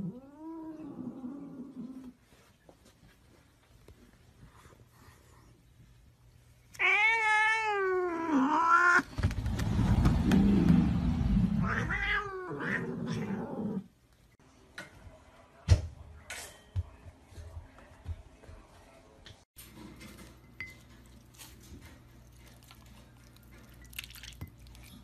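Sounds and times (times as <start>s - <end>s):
cat yowling: 6.8s - 9.1s.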